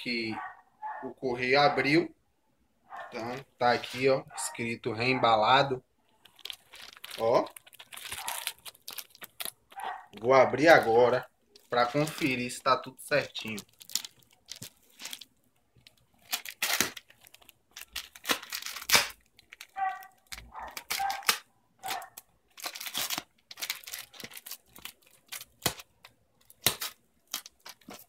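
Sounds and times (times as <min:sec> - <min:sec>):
cardboard crinkling: 0:03.0 - 0:04.5, 0:06.0 - 0:28.0
tape and cardboard ripping: 0:16.2 - 0:17.2, 0:17.8 - 0:28.0.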